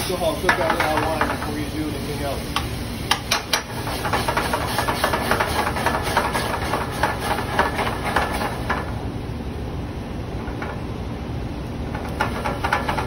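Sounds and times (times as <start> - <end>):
sizzling and crackling in a pan: 0.0 - 9.0, 12.0 - 13.0.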